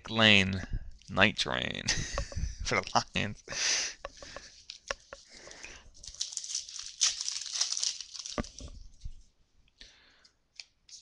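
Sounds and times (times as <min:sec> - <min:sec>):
foil wrapper crackling: 0:06.0 - 0:08.8.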